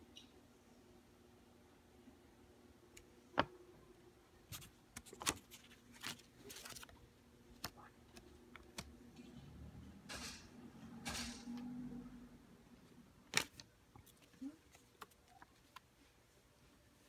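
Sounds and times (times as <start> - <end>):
banknote crinkling and rustling: 4.5 - 9.0.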